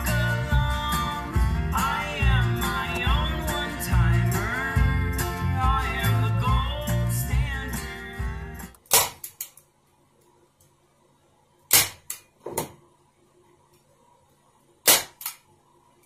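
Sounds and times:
staple gun snapping: 14.9 - 15.4.

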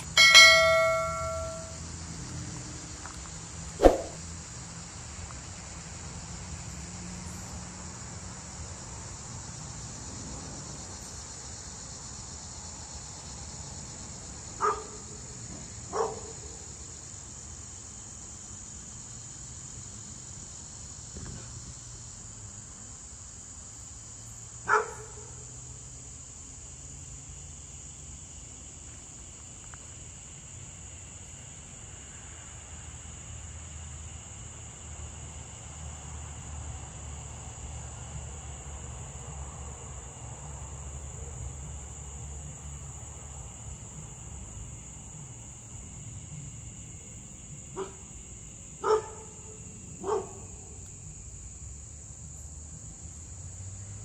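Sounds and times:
crickets chirping: 0.0 - 54.0
dog barking: 14.6 - 15.0, 15.9 - 16.4, 24.7 - 25.3, 47.8 - 48.0, 48.8 - 50.6.

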